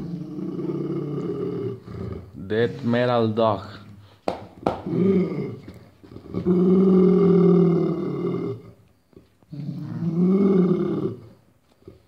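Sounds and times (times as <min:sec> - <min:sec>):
dog growling: 0:00.0 - 0:02.4, 0:04.8 - 0:08.8, 0:09.5 - 0:12.0.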